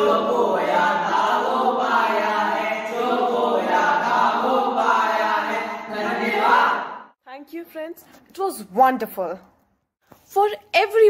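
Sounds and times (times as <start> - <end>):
boys singing in chorus: 0.0 - 7.1.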